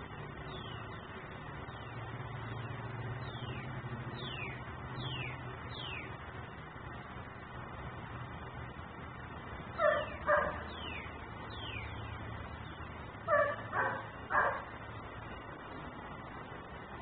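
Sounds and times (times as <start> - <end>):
dog barking: 9.8 - 10.6, 13.3 - 14.7.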